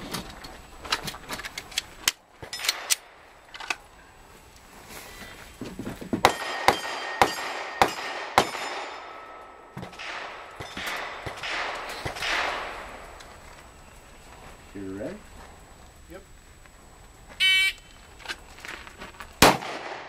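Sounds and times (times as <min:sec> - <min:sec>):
steel target plate ringing: 0:06.2 - 0:12.8
handgun shots: 0:06.2 - 0:12.9, 0:19.4 - 0:20.0.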